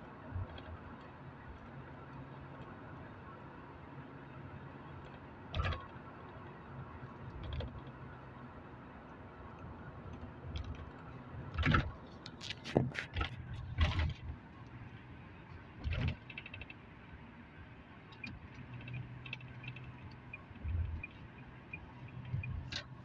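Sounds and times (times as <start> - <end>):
car road and engine rumble: 0.0 - 23.0
sharp clicks and knocks: 10.1 - 14.3, 15.8 - 16.8.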